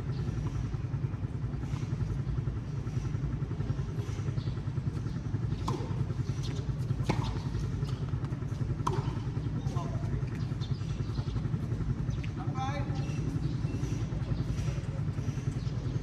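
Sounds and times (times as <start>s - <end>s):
steady low rumble: 0.0s - 16.0s
tennis ball struck by racket: 5.6s - 6.1s, 7.0s - 7.6s, 8.8s - 9.2s.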